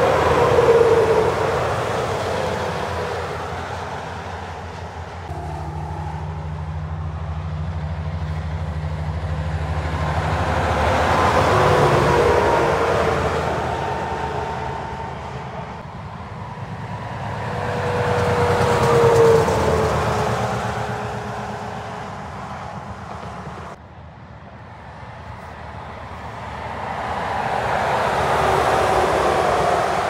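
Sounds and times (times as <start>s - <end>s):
trucks passing on a motorway: 0.0s - 30.0s.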